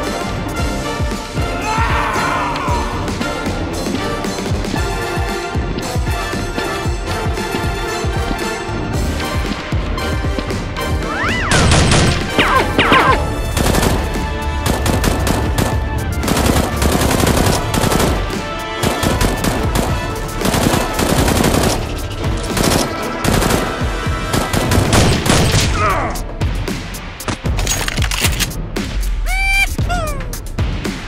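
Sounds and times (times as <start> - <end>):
automatic gunfire: 22.6 - 25.7.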